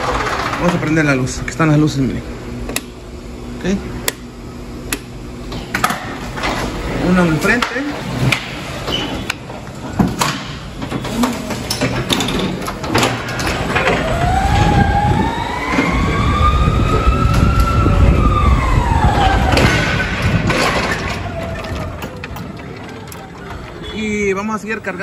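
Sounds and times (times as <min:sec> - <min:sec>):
forklift motor whining: 0:12.4 - 0:24.4
low rumble: 0:13.7 - 0:23.8
knocks and clatters: 0:19.3 - 0:24.0.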